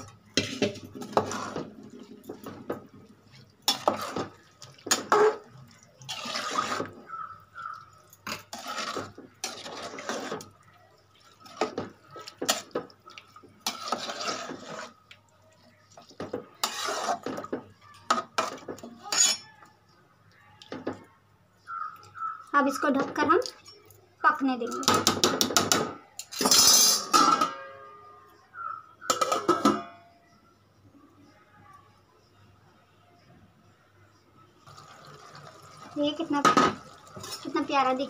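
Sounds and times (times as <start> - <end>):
spoon stirring boiling water: 0.0 - 27.5, 34.6 - 38.0
spoon clinking against pot: 29.0 - 30.1.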